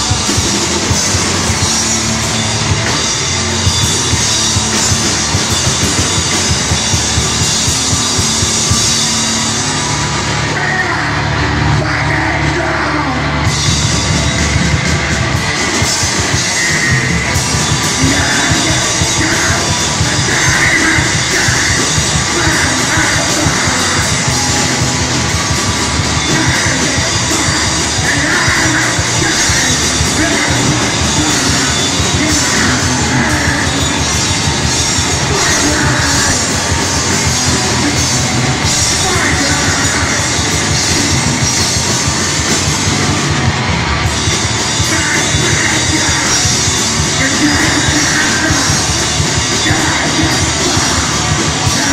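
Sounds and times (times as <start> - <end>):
distorted guitars: 0.0 - 51.9
fast dense drumming: 0.0 - 51.9
vocalist screaming: 15.9 - 41.8, 44.5 - 51.9.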